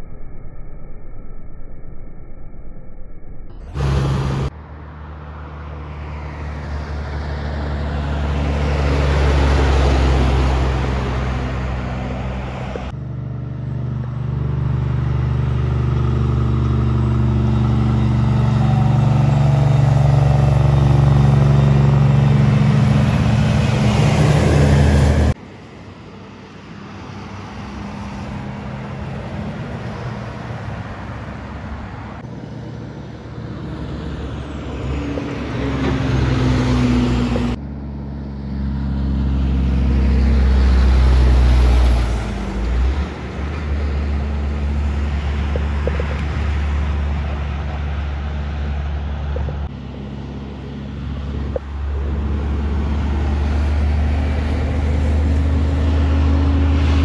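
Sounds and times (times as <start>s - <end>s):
trucks passing by: 3.5s - 57.0s.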